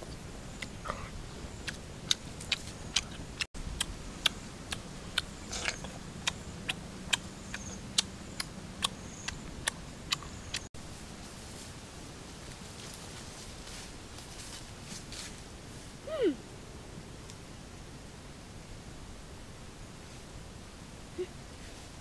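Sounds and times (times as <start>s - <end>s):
faint low hum: 0.0s - 22.0s
sharp evenly spaced clicks: 1.6s - 10.7s.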